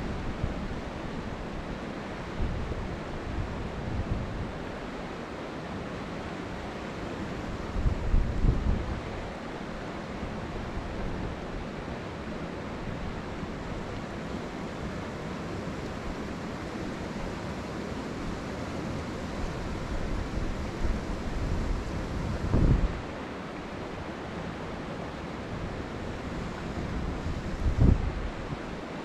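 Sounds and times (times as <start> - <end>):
river water rushing: 0.0 - 29.0
wind rumbling on microphone: 7.5 - 9.1, 19.3 - 23.2, 25.5 - 28.8.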